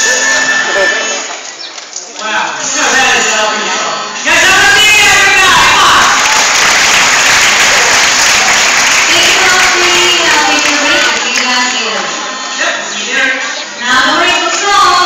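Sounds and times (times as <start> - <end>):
voices and cheering: 2.1 - 12.2
audience applauding: 5.5 - 11.8.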